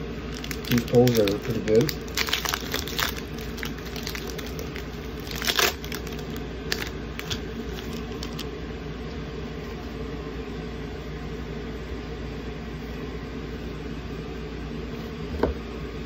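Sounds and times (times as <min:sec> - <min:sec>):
steady low hum: 0:00.0 - 0:16.0
cards rustling: 0:00.3 - 0:08.5
foil wrapper crinkling: 0:00.3 - 0:08.5.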